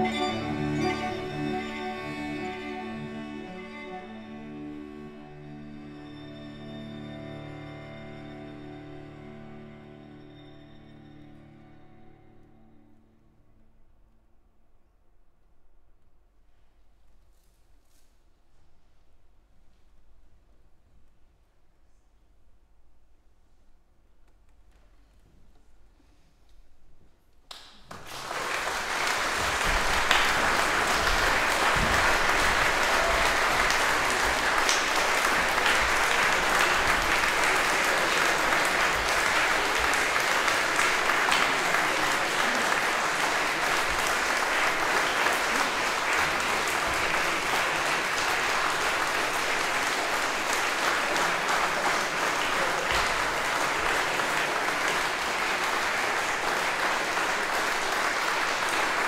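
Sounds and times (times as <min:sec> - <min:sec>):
audience clapping: 0:00.0 - 0:05.8, 0:27.5 - 0:59.0.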